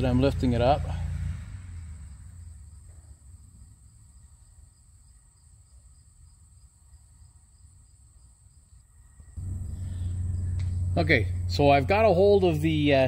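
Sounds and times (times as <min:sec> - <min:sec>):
low rumble: 0:09.4 - 0:13.0
soft high pulse: 0:09.4 - 0:13.0
thin high whine: 0:09.4 - 0:13.0.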